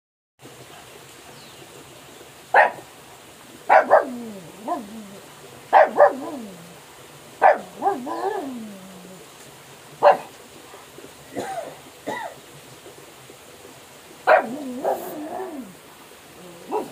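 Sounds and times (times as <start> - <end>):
dog barking: 2.5 - 2.9, 3.7 - 5.0, 5.7 - 6.6, 7.4 - 8.6, 10.0 - 10.3, 14.2 - 15.7, 16.6 - 16.9.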